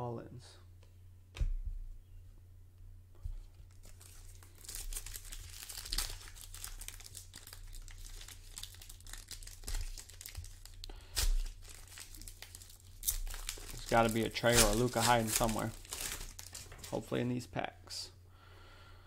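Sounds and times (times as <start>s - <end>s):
plastic wrapper crinkling: 3.4s - 17.2s
plastic wrapper ripping: 3.7s - 17.0s.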